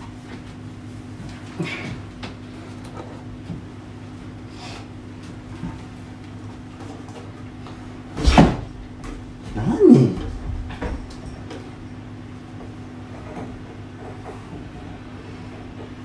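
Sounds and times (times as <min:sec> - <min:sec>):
steady low hum: 0:00.0 - 0:16.0
loud thump: 0:08.2 - 0:08.9.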